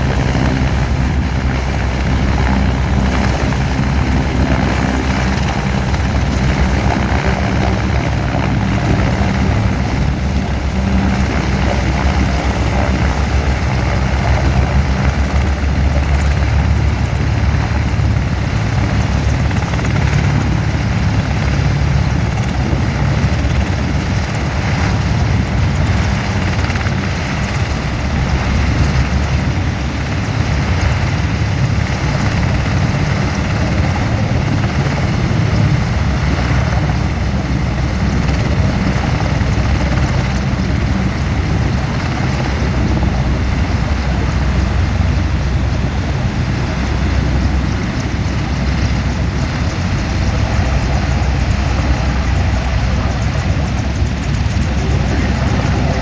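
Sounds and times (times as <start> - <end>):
helicopter rotor noise: 0.0 - 56.0.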